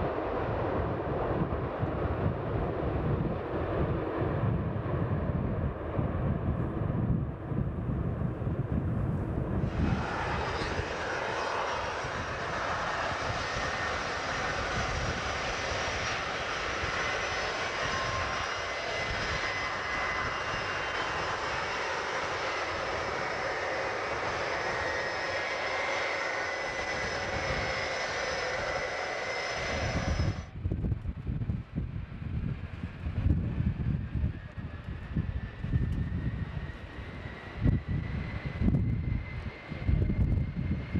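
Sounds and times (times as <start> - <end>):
jet engines roaring: 0.0 - 30.9, 31.5 - 40.9.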